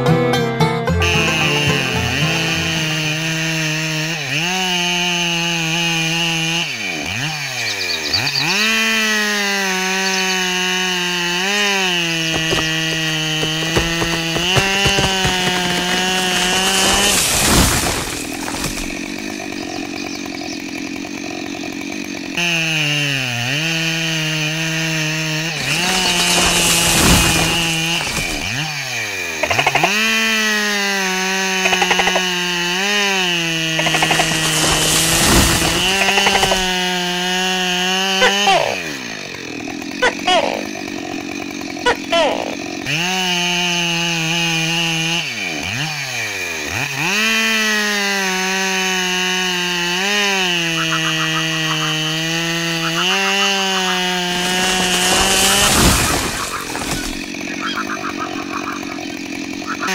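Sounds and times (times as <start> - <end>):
small motor whining: 6.0 - 23.0, 52.8 - 59.9.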